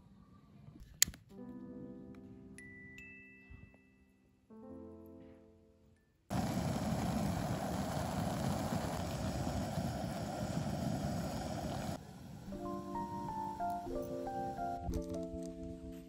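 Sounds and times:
water boiling in a pot: 6.3s - 12.5s.

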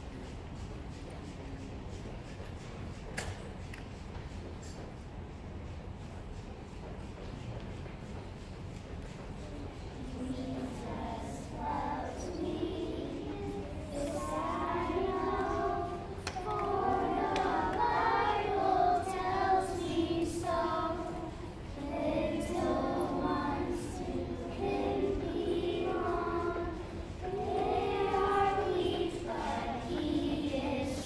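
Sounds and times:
young children singing: 9.3s - 31.0s.

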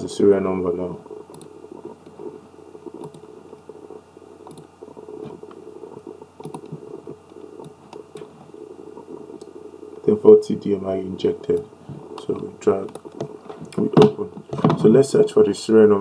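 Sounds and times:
steady low hum: 0.0s - 16.0s
computer mouse clicks: 1.0s - 10.1s, 11.5s - 14.0s.

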